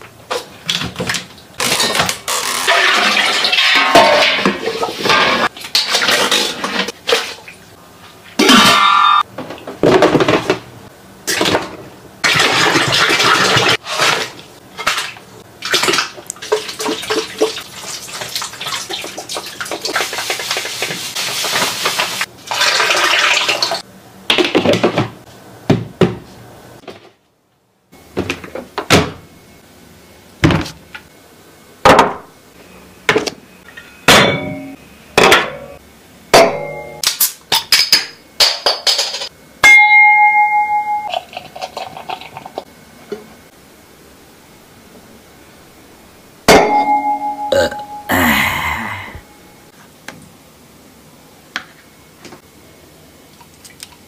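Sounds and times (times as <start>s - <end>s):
liquid pouring and splashing: 15.7s - 23.8s.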